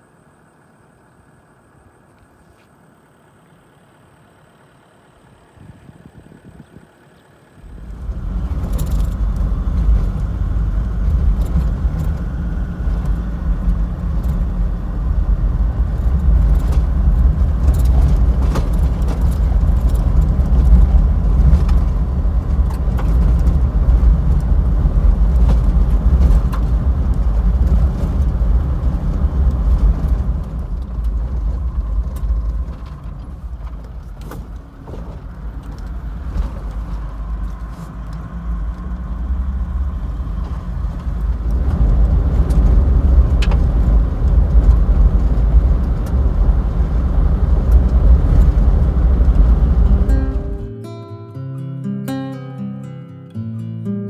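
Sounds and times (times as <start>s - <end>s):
engine and tyres rumbling: 0.0s - 50.9s
vehicle rattles and knocks: 3.8s - 50.7s.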